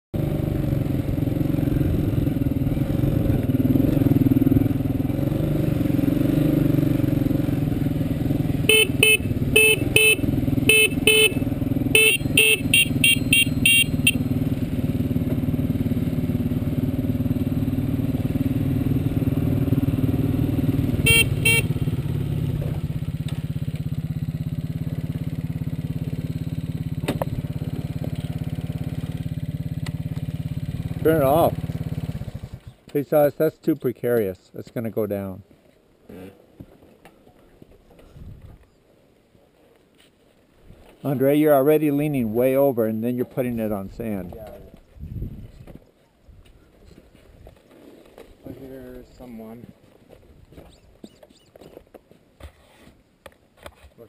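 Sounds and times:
dirt bike engine running: 0.2 - 32.7
dirt bike horn beeps: 8.6 - 14.3, 21.0 - 21.9.

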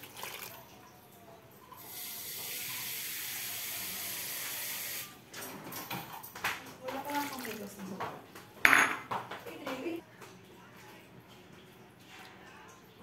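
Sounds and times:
water pouring into metal pot: 0.0 - 1.0, 7.0 - 7.9.

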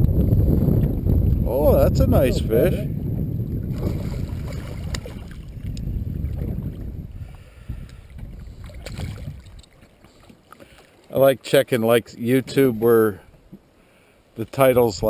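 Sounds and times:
wind on microphone: 0.0 - 9.8
water splashing against boat: 3.5 - 13.8.

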